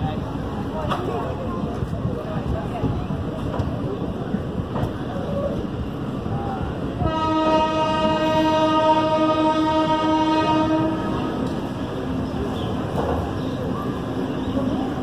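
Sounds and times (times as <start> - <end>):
station platform noise: 0.0 - 15.0
train horn blast: 7.0 - 11.4.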